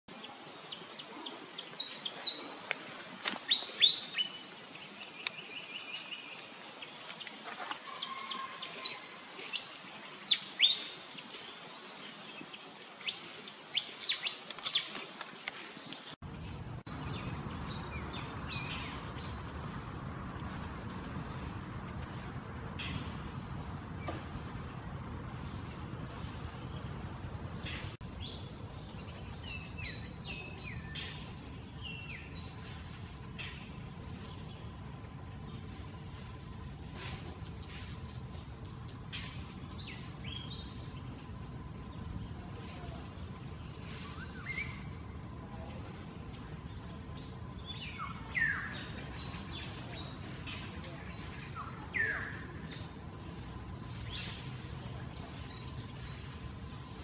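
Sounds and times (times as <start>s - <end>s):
small birds chirping: 0.1s - 57.0s
steady low rumbling: 16.2s - 57.0s.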